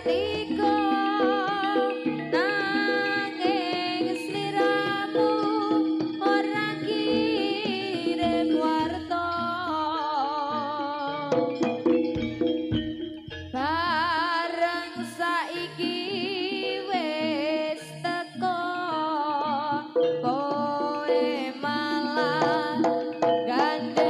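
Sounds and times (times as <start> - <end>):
steady held tone: 0.0 - 10.0, 17.9 - 24.0
person singing wavering notes: 0.0 - 11.8, 13.2 - 24.0
gamelan: 0.0 - 24.0
drum strokes: 11.3 - 13.6, 21.2 - 24.0.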